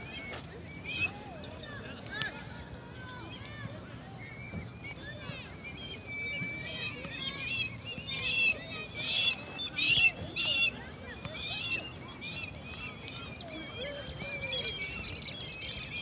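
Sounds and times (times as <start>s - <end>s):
flock of birds chirping: 0.0s - 16.0s.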